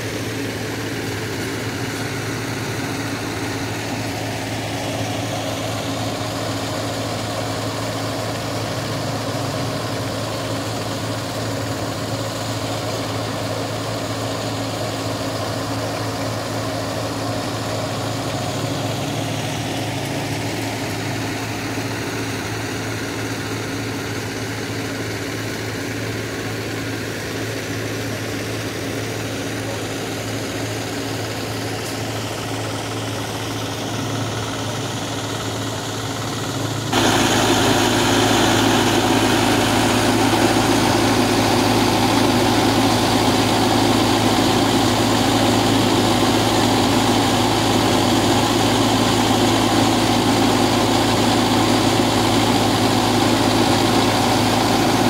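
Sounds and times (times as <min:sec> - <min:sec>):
tractor diesel engine running: 0:00.0 - 0:55.0.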